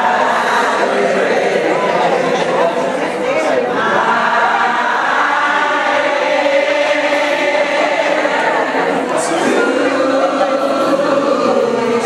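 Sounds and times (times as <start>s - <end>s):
group of voices singing: 0.0s - 12.0s.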